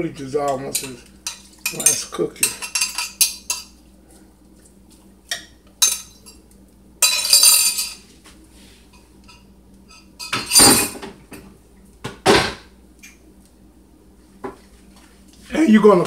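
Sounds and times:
heavy kitchenware clunk: 10.2 - 11.2.

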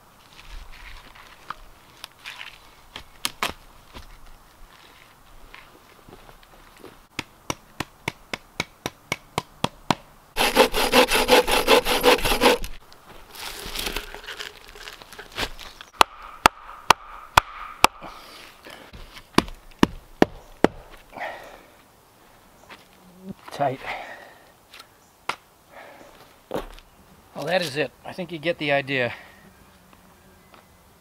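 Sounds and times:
hand saw cutting log: 10.4 - 12.8.

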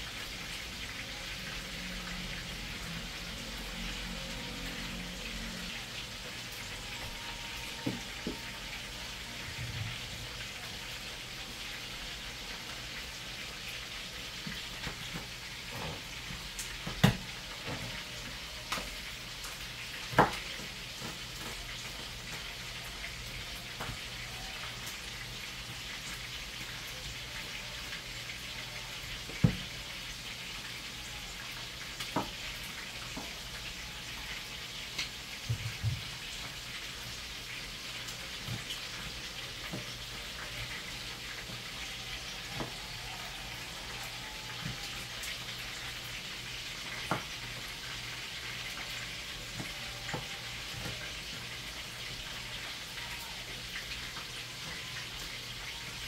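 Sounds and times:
chicken sizzling in a pan: 0.0 - 56.0.

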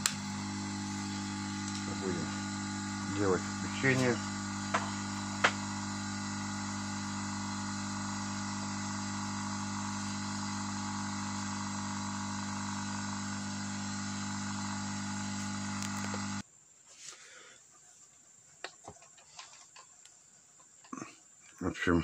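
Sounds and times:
buzzing mains hum: 0.0 - 17.5.

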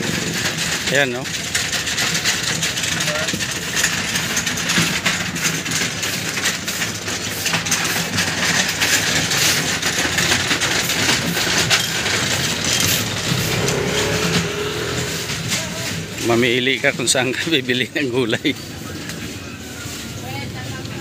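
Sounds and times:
small clatters and clicks: 0.0 - 19.3
market din: 0.0 - 21.0.

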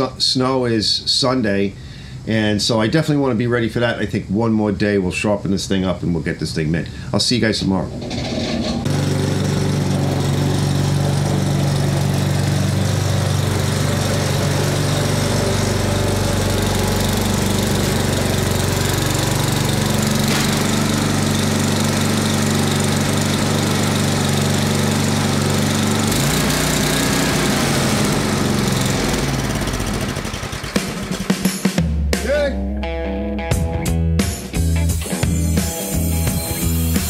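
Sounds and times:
snowblower engine running: 8.2 - 31.6.

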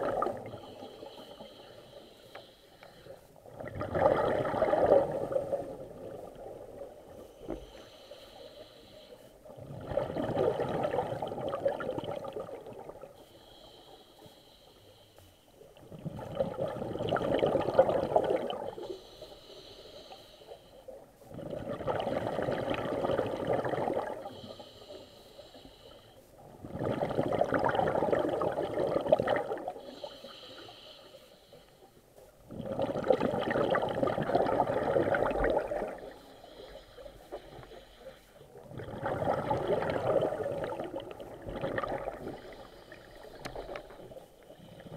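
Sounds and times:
bubbling exhalations underwater: 3.5 - 6.6, 9.6 - 13.0, 16.0 - 18.7, 21.3 - 24.2, 26.6 - 29.7, 32.5 - 36.0, 38.7 - 42.5
regulator hissing inhalation: 18.9 - 20.8, 29.8 - 31.9.

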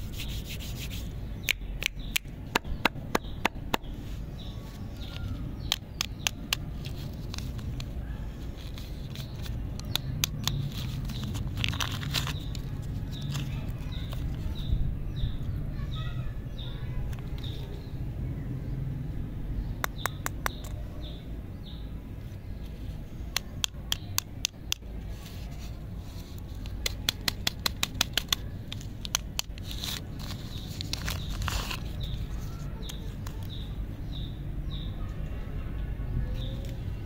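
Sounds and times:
wrappers crinkling: 10.4 - 14.2, 28.2 - 33.0.

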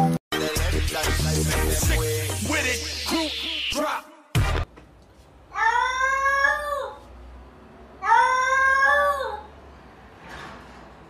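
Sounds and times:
cat meowing: 8.0 - 9.5.

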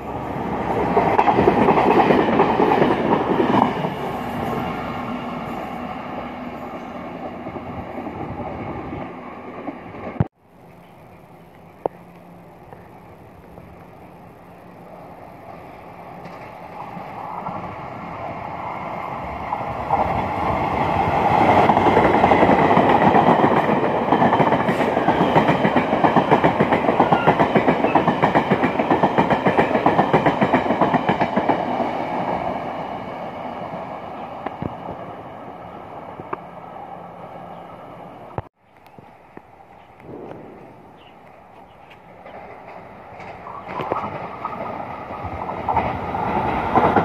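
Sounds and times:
train passing through station: 0.0 - 47.0
wheels clattering on rails: 0.1 - 5.5, 9.9 - 17.8, 39.8 - 47.0.

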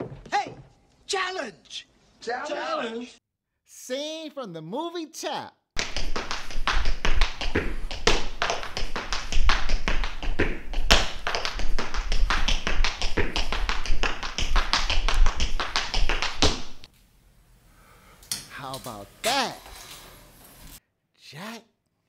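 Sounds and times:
tap shoes clicking on hard floor: 5.8 - 16.9.

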